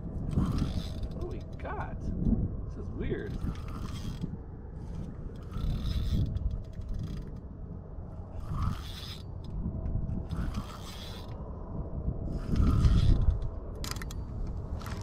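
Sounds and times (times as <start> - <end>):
low rumble: 0.0 - 15.0
fishing reel clicking: 0.3 - 1.6, 3.3 - 7.4, 8.4 - 9.5, 10.3 - 11.4, 12.4 - 14.2.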